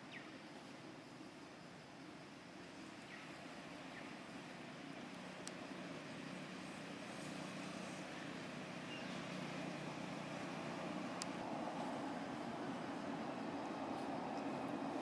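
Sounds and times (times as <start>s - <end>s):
distant traffic hum: 0.0s - 15.0s
faint clicks: 5.1s - 5.6s, 11.2s - 11.4s.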